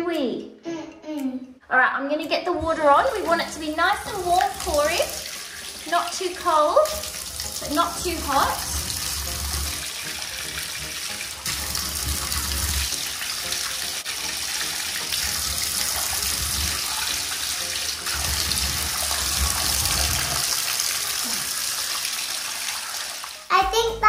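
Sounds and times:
tap water splashing into tub: 2.6s - 21.2s.

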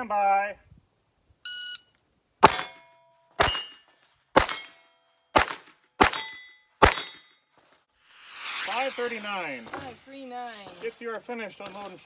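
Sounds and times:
pistol shots: 2.4s - 2.8s, 3.4s - 7.2s.

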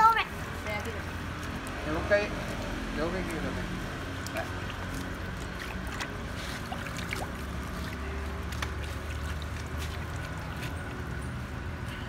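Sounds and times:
water sloshing in a plastic basin: 0.6s - 11.9s.

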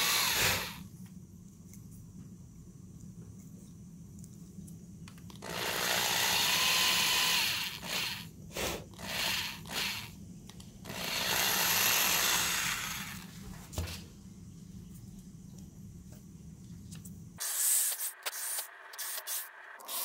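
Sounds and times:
cordless drill boring plastic: 0.0s - 0.8s, 5.4s - 8.2s, 9.0s - 10.1s, 10.9s - 13.3s.

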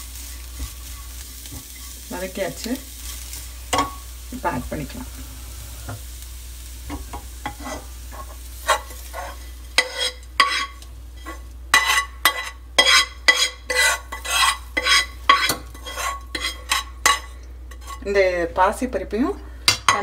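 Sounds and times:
metal spoon scraping frying pan: 6.9s - 18.2s.

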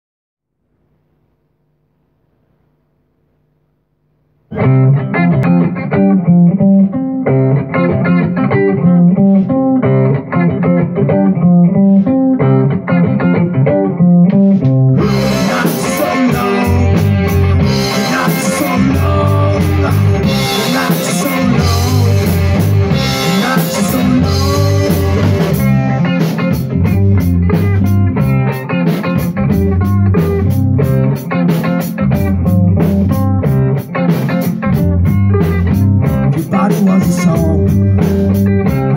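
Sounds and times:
guitar playing: 4.5s - 38.9s
rock band playing live: 4.5s - 38.9s.

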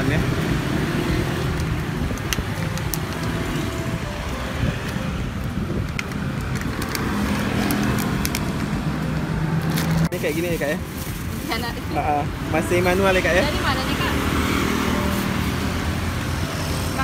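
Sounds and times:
road traffic rumble: 0.0s - 17.0s
wind on microphone: 1.1s - 9.6s.

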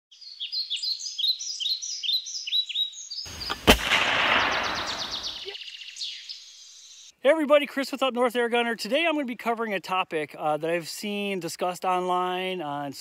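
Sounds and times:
birds chirping: 0.1s - 7.2s
gunshot: 3.3s - 5.5s.

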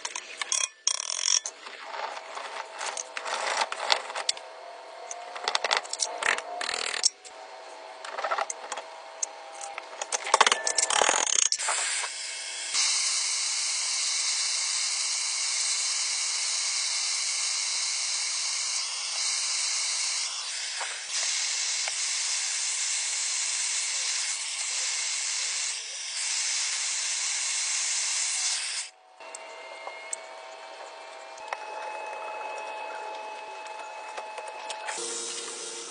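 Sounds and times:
gas torch hissing: 11.5s - 29.0s, 34.9s - 35.9s.

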